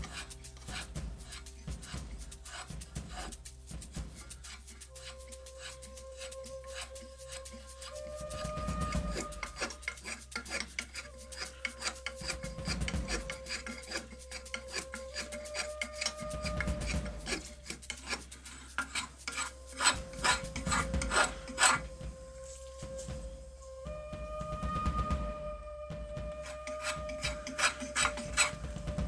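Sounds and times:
hand plane scraping wood: 4.2s - 21.9s, 26.4s - 28.7s.

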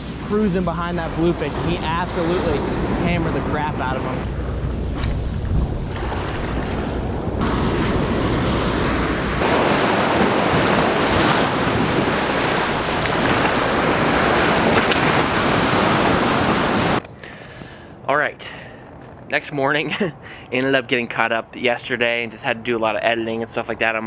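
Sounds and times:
ocean surf breaking: 0.0s - 17.0s
wind rumbling on microphone: 0.0s - 17.0s.

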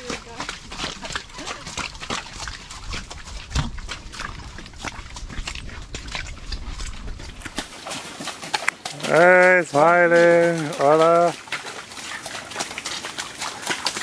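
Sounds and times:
horse hooves on stony trail: 0.0s - 14.0s
low thump: 3.5s - 3.9s.

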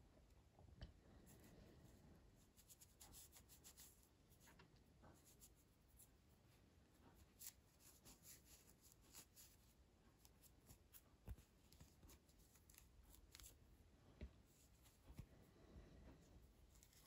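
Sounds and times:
cloth rubbing on ball bearing: 7.1s - 13.6s.

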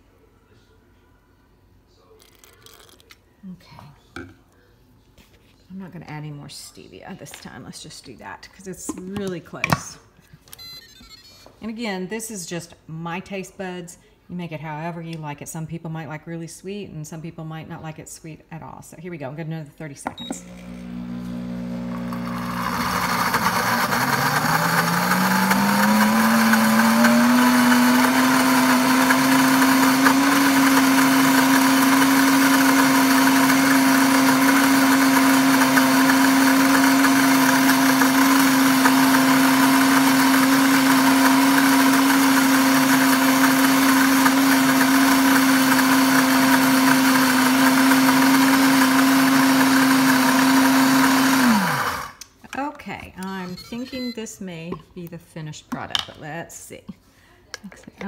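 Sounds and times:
blender motor running: 20.2s - 52.2s.

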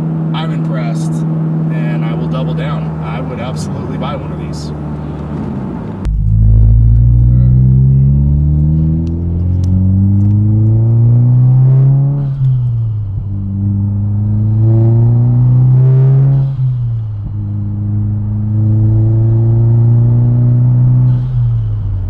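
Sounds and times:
car engine accelerating hard: 0.0s - 22.0s.

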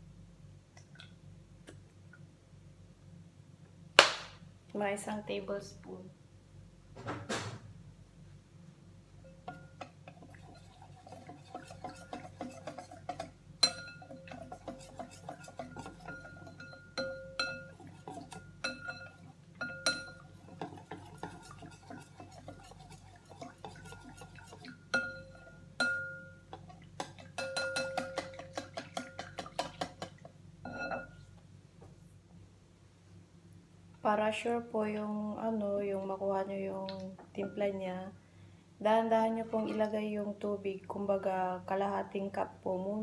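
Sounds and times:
whisk beating in glass bowl: 9.4s - 30.2s.

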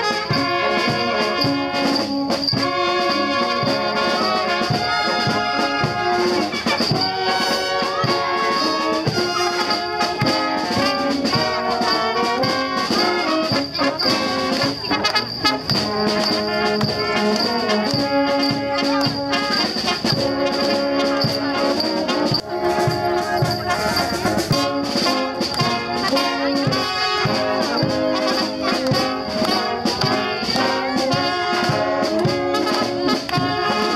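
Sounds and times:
brass band playing: 0.0s - 33.9s
bass drum beat: 22.4s - 33.7s.

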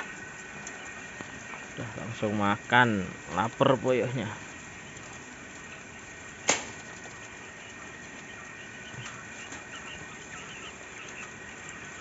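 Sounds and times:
quail chirping softly: 0.0s - 2.7s, 3.3s - 12.0s
sharp click: 6.5s - 6.8s.

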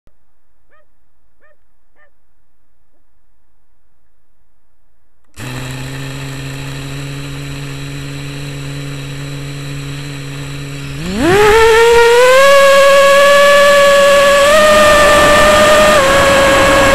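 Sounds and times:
quadcopter motors humming: 5.3s - 16.9s.

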